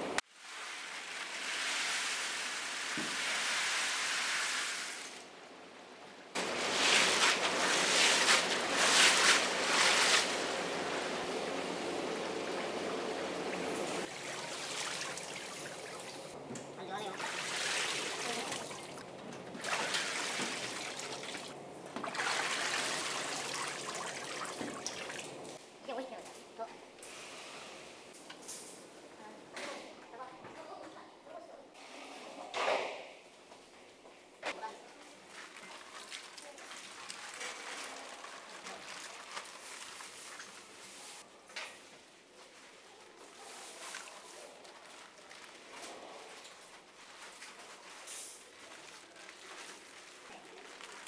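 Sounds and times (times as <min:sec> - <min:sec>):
water pouring off basket: 0:06.4 - 0:16.4, 0:17.2 - 0:19.0, 0:19.6 - 0:25.6, 0:35.3 - 0:41.2
water splashing in a tank: 0:06.4 - 0:16.4, 0:17.0 - 0:25.6, 0:35.2 - 0:41.2
bags rustling and clattering: 0:42.3 - 0:51.0.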